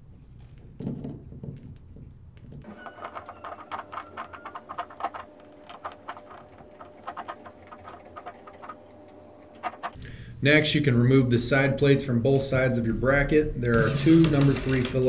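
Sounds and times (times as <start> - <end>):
coiled plastic cables clicking: 0.4 - 10.1.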